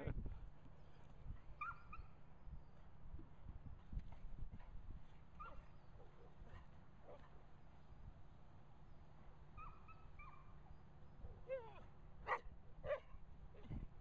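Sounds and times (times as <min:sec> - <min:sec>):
dogs whining and yipping: 0:01.6 - 0:02.1.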